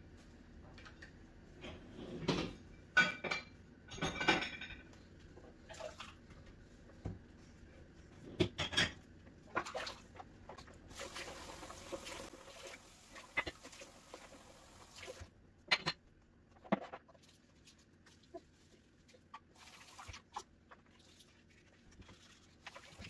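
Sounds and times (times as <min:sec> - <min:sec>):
dishes clinking in sink: 0:01.6 - 0:05.1, 0:08.4 - 0:09.8
tap water running: 0:09.5 - 0:15.3, 0:19.4 - 0:21.3, 0:22.0 - 0:23.0.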